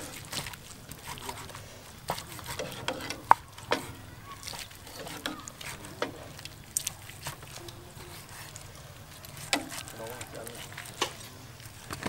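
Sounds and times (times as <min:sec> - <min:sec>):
knife cutting meat on wooden board: 0:02.1 - 0:04.0.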